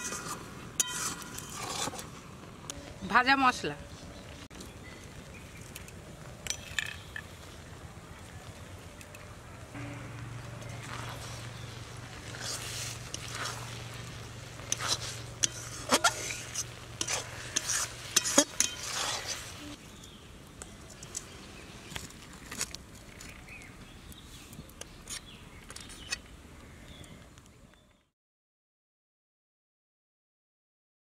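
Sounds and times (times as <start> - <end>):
metal spatula scraping a pot: 0.0 - 2.1, 10.6 - 19.8
sizzling hiss: 5.0 - 21.8.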